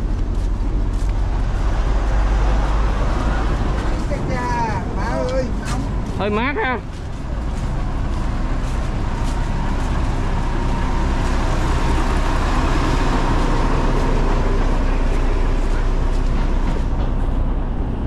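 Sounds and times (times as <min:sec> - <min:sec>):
vehicle engine rumble with road noise: 0:00.0 - 0:18.0.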